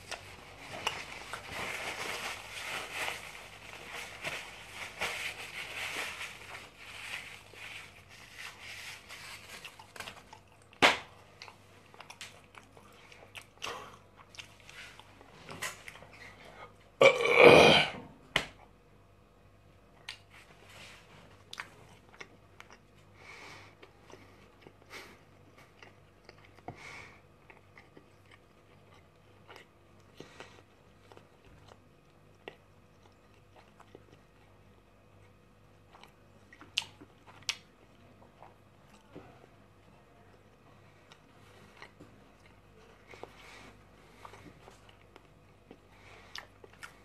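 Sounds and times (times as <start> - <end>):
man chewing food: 0.0 - 1.6, 6.3 - 17.4, 19.9 - 39.2, 39.8 - 47.0
loud burp: 17.0 - 18.1.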